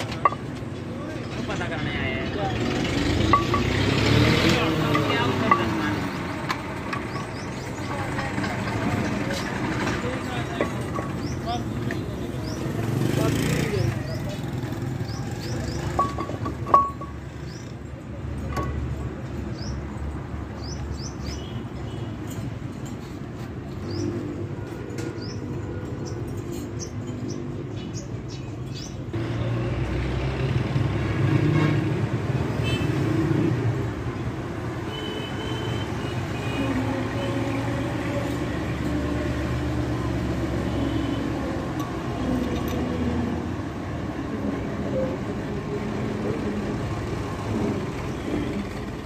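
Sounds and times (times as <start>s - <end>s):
birds chirping: 1.9s - 18.2s, 19.3s - 22.1s, 23.7s - 24.4s, 25.1s - 29.2s
motor vehicle engine drone: 2.4s - 7.5s.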